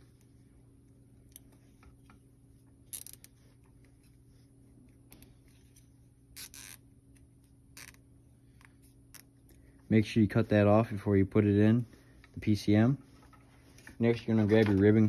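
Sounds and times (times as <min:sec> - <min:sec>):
low steady hum: 0:00.0 - 0:15.0
zip tie ratcheting: 0:02.9 - 0:03.4, 0:06.3 - 0:08.0.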